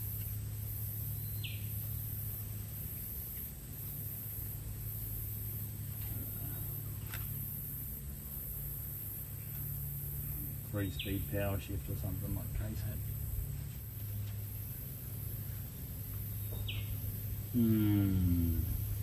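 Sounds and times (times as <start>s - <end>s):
steady low hum: 0.0s - 19.0s
falling bird chirp: 16.4s - 17.0s.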